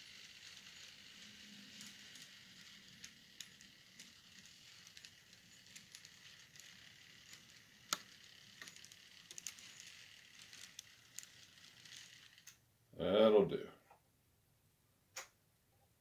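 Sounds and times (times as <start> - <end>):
model train cars rolling: 0.0 - 12.6
wheels clicking over rail joints: 0.0 - 12.6.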